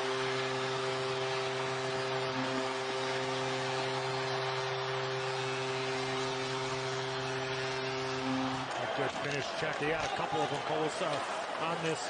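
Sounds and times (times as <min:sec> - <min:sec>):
crowd cheering loudly: 0:00.0 - 0:12.0
goal horn low note: 0:02.3 - 0:09.0.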